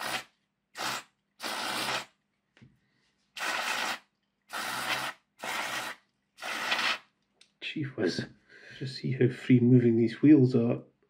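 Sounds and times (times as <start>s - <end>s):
aerosol spray hissing: 0.0s - 2.1s, 3.4s - 7.0s.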